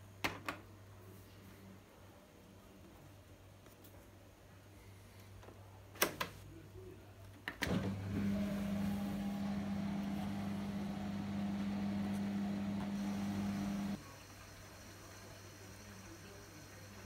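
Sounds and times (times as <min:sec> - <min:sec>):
dishwasher pump motor humming: 0:07.7 - 0:14.0.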